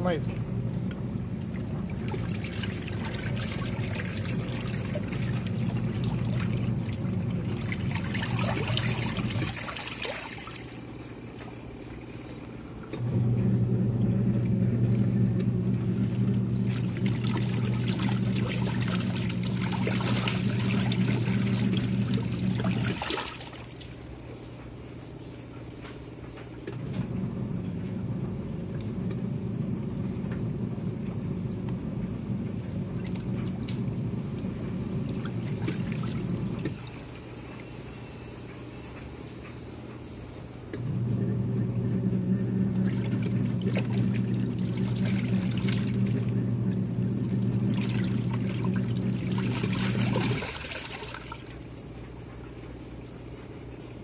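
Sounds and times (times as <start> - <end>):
washing machine motor humming: 0.0 - 54.0
water sloshing and splashing: 0.7 - 13.0, 14.4 - 24.8, 31.0 - 37.8, 42.6 - 54.0.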